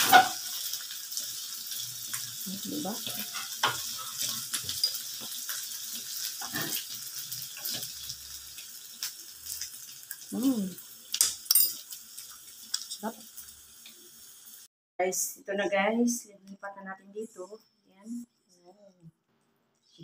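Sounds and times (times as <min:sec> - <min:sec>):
metal spatula scraping a pan: 0:00.0 - 0:00.6, 0:03.1 - 0:05.3, 0:06.1 - 0:08.1
food sizzling in a pan: 0:00.0 - 0:14.7.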